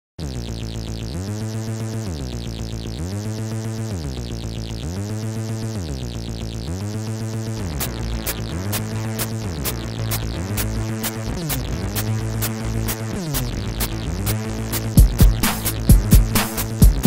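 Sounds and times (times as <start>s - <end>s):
low synth line: 0.2s - 17.0s
sharp clicks: 7.7s - 17.0s.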